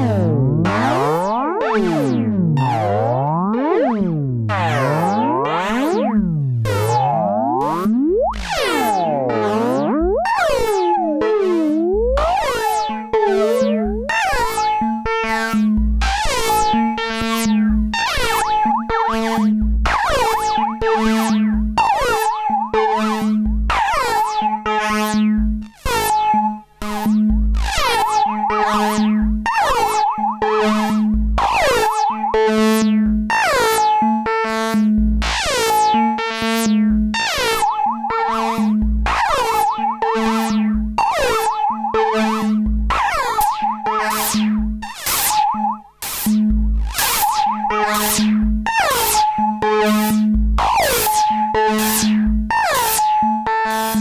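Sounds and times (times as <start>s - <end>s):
held low synth tone: 0.0s - 12.4s, 27.3s - 33.3s, 39.9s - 50.7s
synthesizer repeating pattern: 0.0s - 54.0s.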